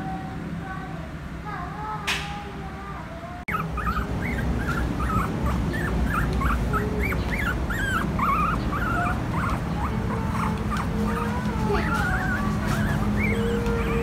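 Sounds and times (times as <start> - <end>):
puppy whimpering: 3.4 - 14.0.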